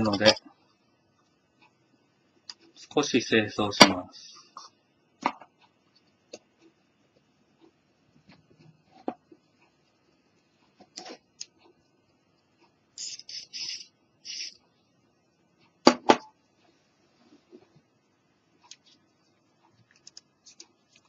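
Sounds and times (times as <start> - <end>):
aerosol can spraying: 13.0 - 14.6.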